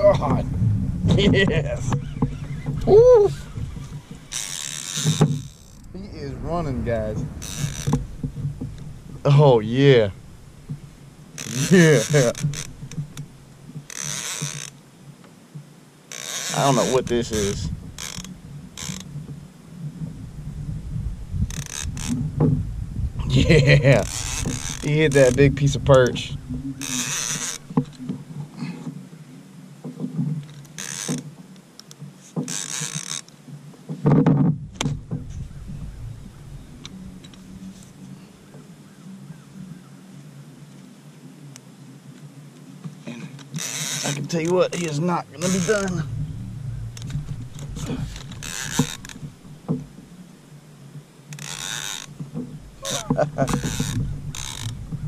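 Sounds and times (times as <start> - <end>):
low burst: 0.0 - 4.4, 5.7 - 13.7, 34.6 - 38.4, 45.3 - 50.1
fishing reel creaking and clicking: 1.2 - 5.9, 7.3 - 8.0, 11.4 - 14.8, 16.1 - 19.1, 21.4 - 22.2, 23.9 - 28.2, 30.4 - 33.4, 43.1 - 46.1, 46.9 - 49.8, 51.3 - 52.2, 52.8 - 54.9.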